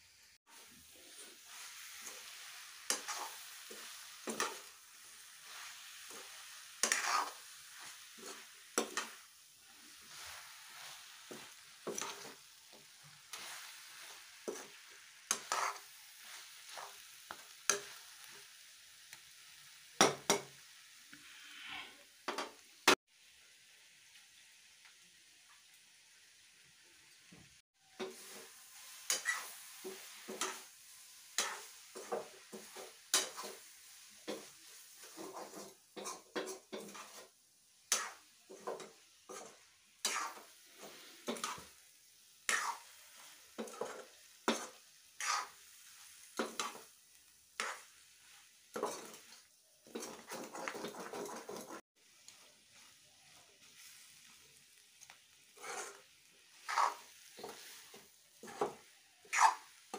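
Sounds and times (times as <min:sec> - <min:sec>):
frying sizzle: 0:00.0 - 0:59.9
metal spatula scraping a pan: 0:00.5 - 0:18.6, 0:21.2 - 0:22.6, 0:28.0 - 0:37.3, 0:37.9 - 0:41.8, 0:42.5 - 0:52.9, 0:55.5 - 0:59.9.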